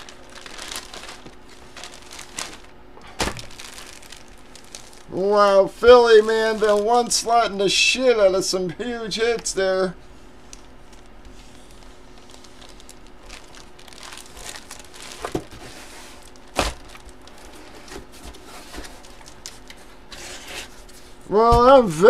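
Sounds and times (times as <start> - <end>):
plastic sleeve crinkling: 0.0 - 5.2, 5.8 - 7.5, 10.5 - 20.0.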